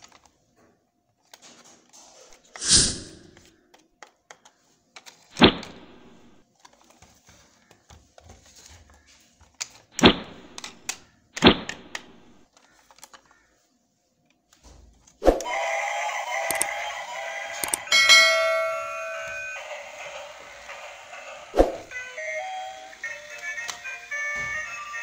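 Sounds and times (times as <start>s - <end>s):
small plastic clicks: 3.4s - 5.4s, 6.6s - 13.6s, 16.5s - 16.7s.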